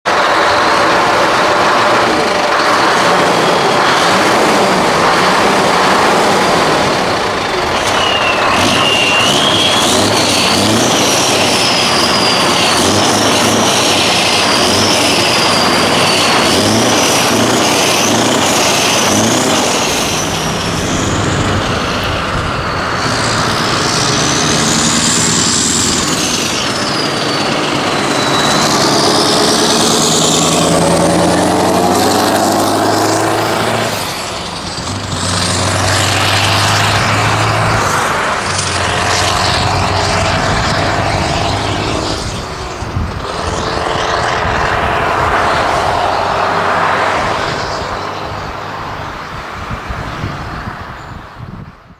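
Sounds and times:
truck engine accelerating: 0.0 - 50.9
high whistle: 7.6 - 34.7.

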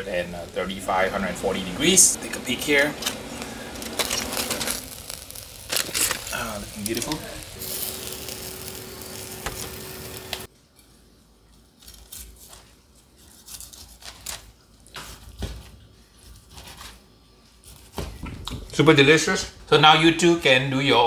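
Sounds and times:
steady hiss: 0.0 - 10.5.

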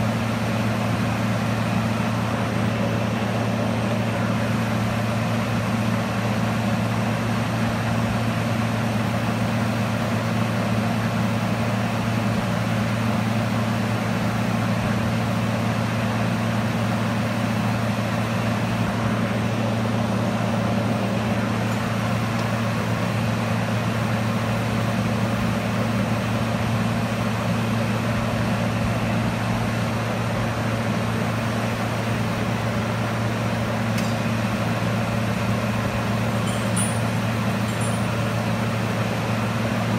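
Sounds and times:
fan noise: 0.0 - 39.9
low electrical hum: 13.6 - 39.9.

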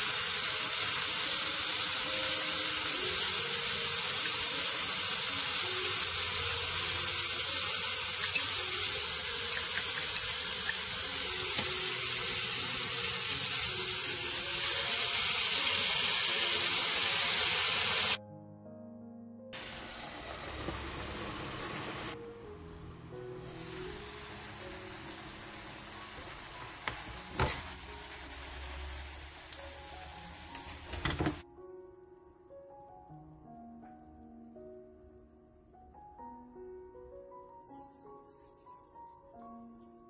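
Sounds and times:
tofu sizzling in frying pan: 0.0 - 18.2, 23.4 - 31.4.

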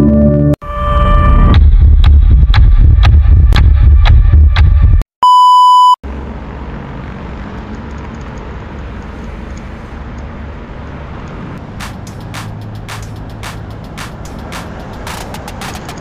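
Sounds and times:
electronic beep: 5.2 - 6.0
car traffic: 6.0 - 16.0
wind and road noise: 6.0 - 16.0
music intro: 11.7 - 16.0.

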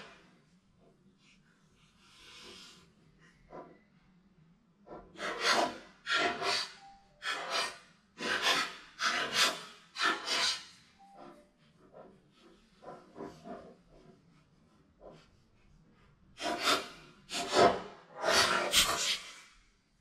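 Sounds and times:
dog scraping plastic board: 16.4 - 19.1.

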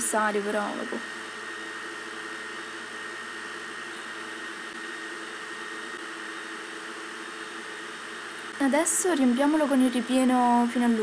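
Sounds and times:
fan hum and hiss: 0.0 - 11.0.

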